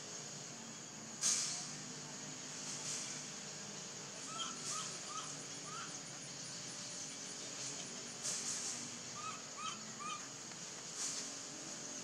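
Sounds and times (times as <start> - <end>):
insects humming: 0.0 - 12.0
brief hiss: 1.1 - 3.5, 8.2 - 8.9, 10.6 - 11.6
short chirping calls: 4.2 - 8.1, 9.1 - 10.4.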